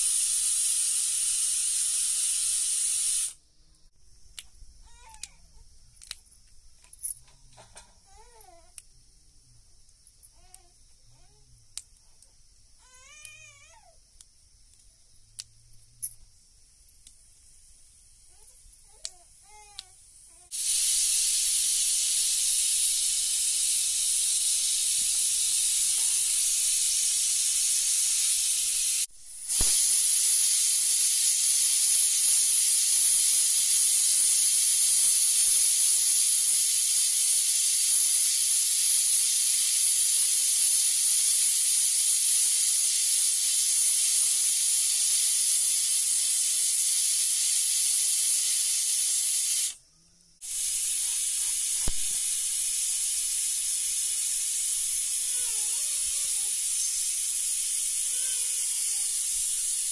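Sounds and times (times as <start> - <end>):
steady hiss: 0.0 - 59.9
single click: 51.8 - 52.2.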